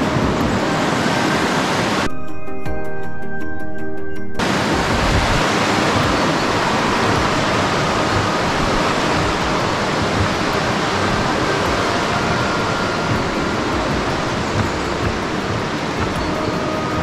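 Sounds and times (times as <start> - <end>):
water rushing over rocks: 0.0 - 2.1, 4.4 - 17.0.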